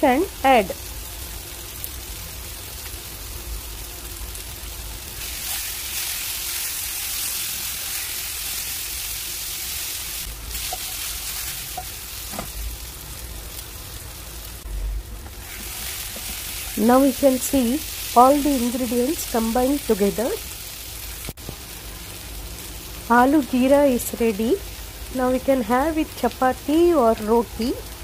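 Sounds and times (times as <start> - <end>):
potatoes sizzling in frying pan: 0.0 - 28.0
wooden spatula knocking on pan: 11.7 - 12.6.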